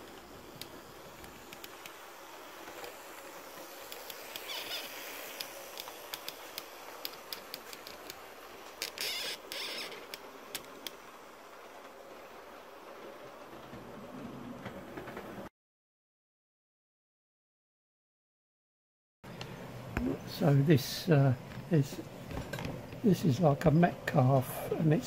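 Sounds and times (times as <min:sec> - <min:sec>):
model train running on track: 0:00.0 - 0:15.5, 0:20.2 - 0:22.1, 0:23.0 - 0:25.0
tripod head squeaking and creaking: 0:04.3 - 0:05.0, 0:08.8 - 0:10.2.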